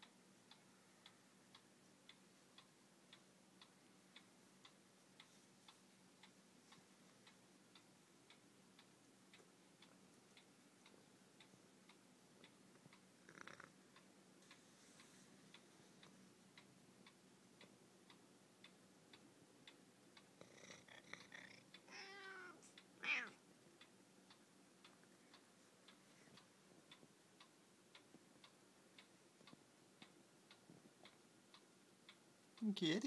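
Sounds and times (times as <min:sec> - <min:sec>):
clock ticking: 0:00.0 - 0:33.0
cat meowing: 0:21.9 - 0:23.4.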